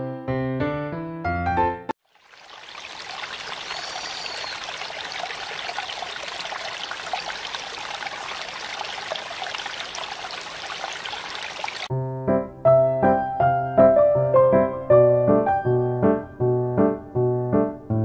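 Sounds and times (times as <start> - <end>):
running water rushing: 2.0 - 11.9.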